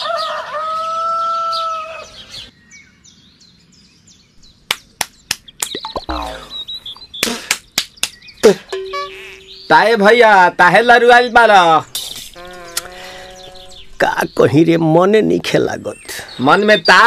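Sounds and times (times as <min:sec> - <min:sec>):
rooster crowing: 0:00.0 - 0:02.2
sharp smacks: 0:04.7 - 0:06.4, 0:07.2 - 0:08.3
faint bird chirps: 0:05.4 - 0:10.1, 0:11.8 - 0:14.8.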